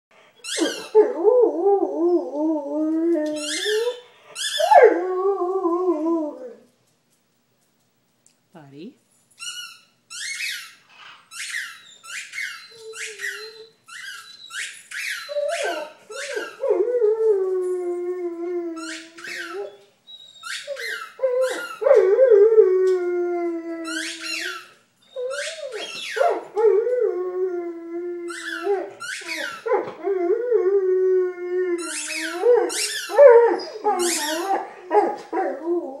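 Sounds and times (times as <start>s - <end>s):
squeaky ball squeaking: 9.4s - 16.6s, 18.8s - 21.8s, 23.8s - 26.3s, 28.2s - 29.7s, 31.8s - 34.6s
dog howling: 20.7s - 36.0s.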